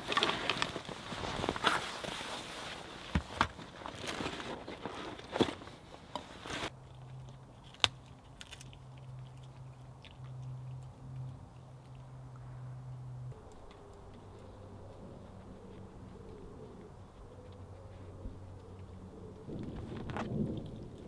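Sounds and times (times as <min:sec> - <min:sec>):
gear rustling in a rucksack: 0:00.0 - 0:06.7
dog gnawing a stick: 0:06.7 - 0:21.0.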